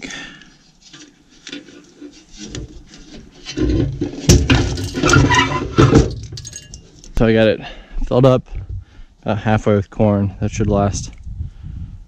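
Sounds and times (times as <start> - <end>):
scraping and rubbing: 0.7 - 7.0.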